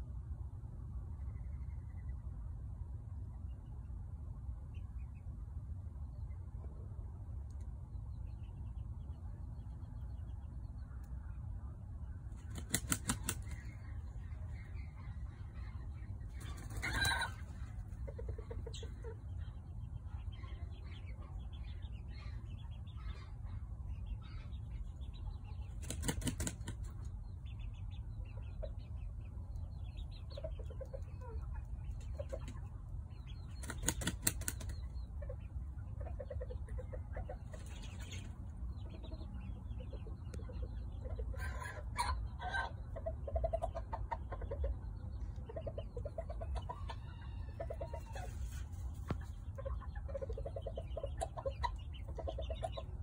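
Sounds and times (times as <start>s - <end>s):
rooster flapping feathers: 12.5s - 13.7s, 25.8s - 26.9s, 33.6s - 34.7s
soft clucks: 33.6s - 53.0s.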